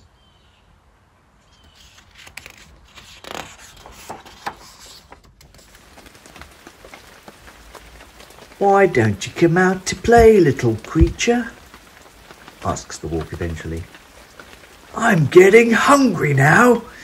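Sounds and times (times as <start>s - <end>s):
quiet even hiss: 0.0s - 17.0s
paper page turning: 1.6s - 8.6s.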